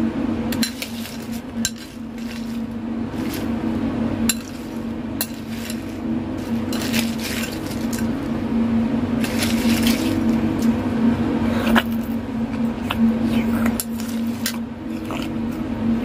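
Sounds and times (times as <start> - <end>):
steady low hum: 0.0 - 16.0
spoon clinking ice in bowl: 0.5 - 2.6, 4.3 - 8.1
ice cubes rattling and scraping: 0.6 - 3.5, 4.3 - 8.2, 9.2 - 10.4.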